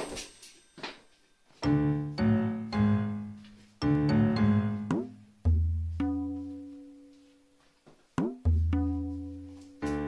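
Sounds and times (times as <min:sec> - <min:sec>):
deep struck notes music: 0:03.9 - 0:06.7, 0:08.2 - 0:10.0.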